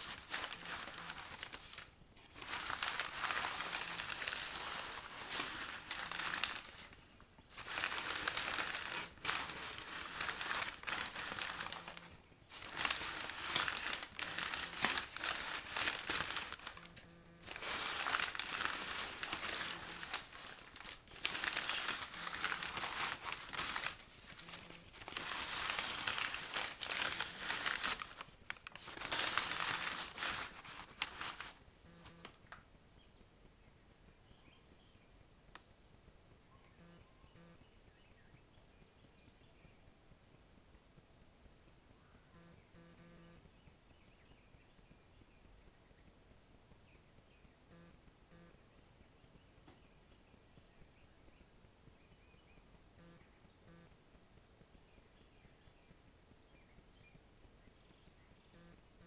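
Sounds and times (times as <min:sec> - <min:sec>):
paper bags rustling and crinkling: 0:00.0 - 0:32.6.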